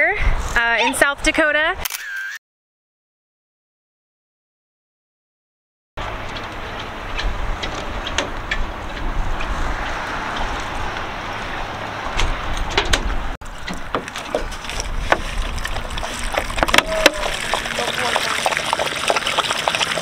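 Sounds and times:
dogs drinking from bowl: 13.6s - 20.0s.

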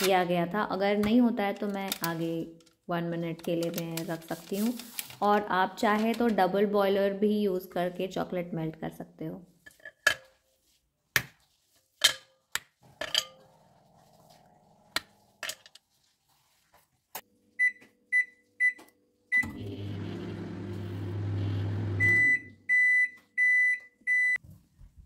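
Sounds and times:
microwave keypad beeps: 17.6s - 19.6s, 21.9s - 24.4s
microwave end-of-cycle beeps: 17.6s - 24.4s
microwave oven humming: 19.4s - 22.6s.

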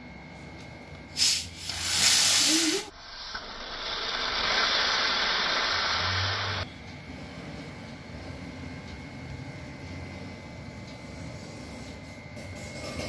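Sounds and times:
soda bottle gas hissing: 1.1s - 6.7s.

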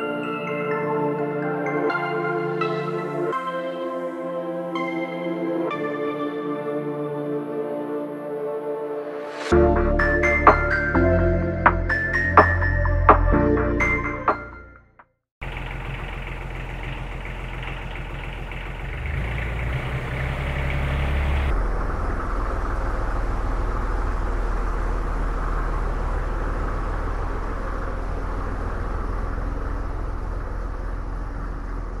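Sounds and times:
diesel engine running: 15.4s - 32.0s.

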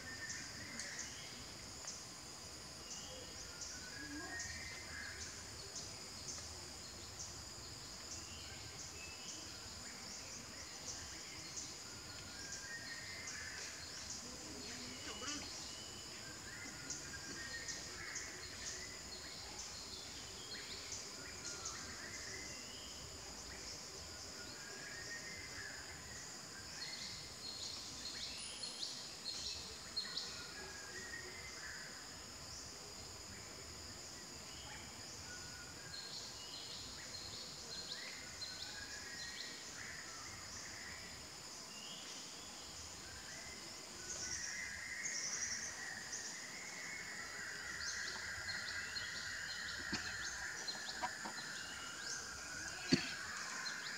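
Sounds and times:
bird chirps: 45.1s - 53.9s.

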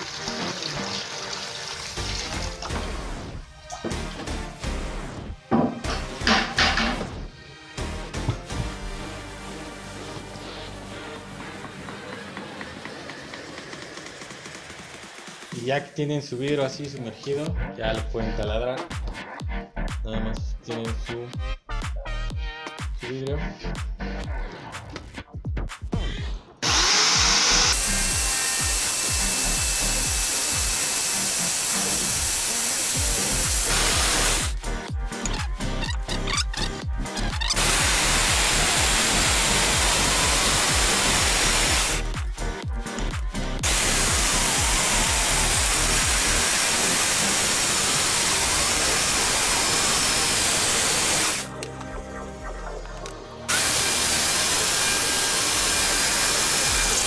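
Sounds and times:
background music with steady beat: 0.0s - 57.0s
electric drill boring: 26.6s - 34.6s, 35.2s - 42.2s, 43.6s - 51.5s, 53.5s - 57.0s.

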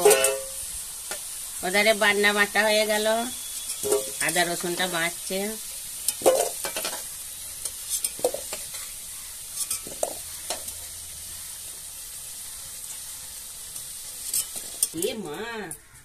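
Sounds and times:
metal ladle scraping a wok: 0.0s - 0.6s, 3.4s - 4.9s, 6.0s - 10.8s, 14.2s - 15.0s
potatoes sizzling in oil: 0.0s - 16.0s.

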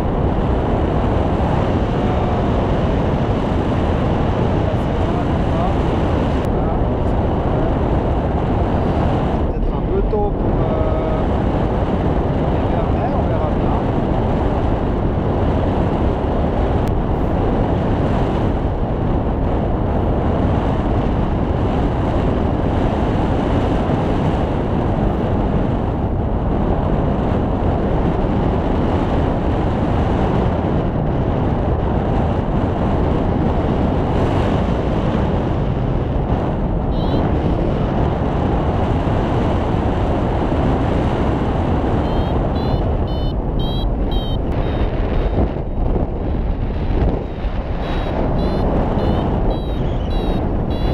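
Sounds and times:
wind buffeting microphone: 0.0s - 50.9s
short high chirps: 42.1s - 45.4s, 47.8s - 50.9s.

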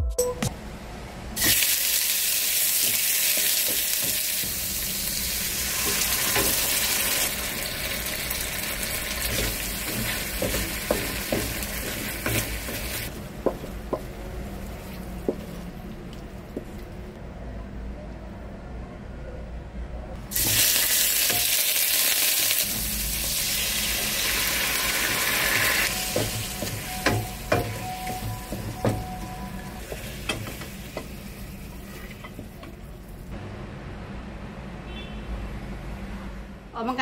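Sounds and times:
food sizzling in a frying pan: 1.4s - 13.1s, 20.3s - 32.3s
spatula scraping and tapping pan: 9.2s - 14.1s.

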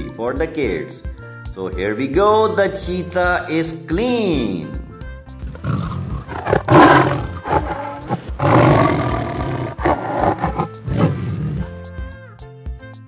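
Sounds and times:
light background music: 0.0s - 13.0s
big cat roaring: 5.5s - 11.8s.

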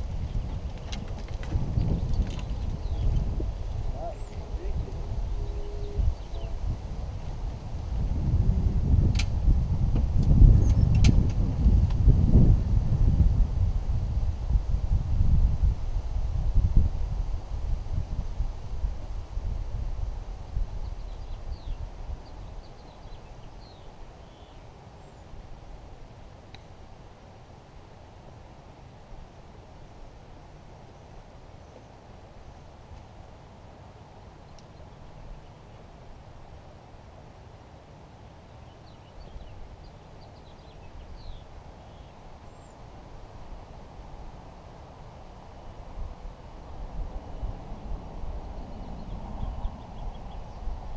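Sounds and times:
low outdoor rumble: 0.0s - 22.1s
wind buffeting microphone: 0.0s - 23.8s.

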